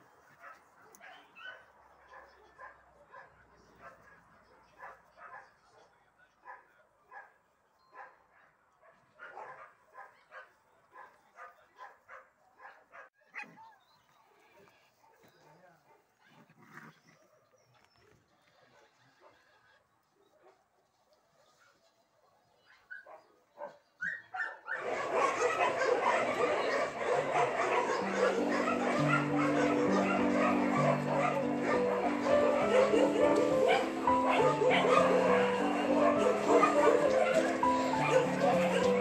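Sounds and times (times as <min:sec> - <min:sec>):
puppy yelping: 0:24.0 - 0:39.0.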